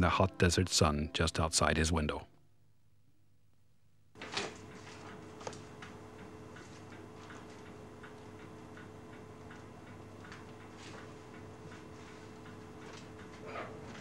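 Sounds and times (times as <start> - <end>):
clock ticking: 6.1 - 13.4.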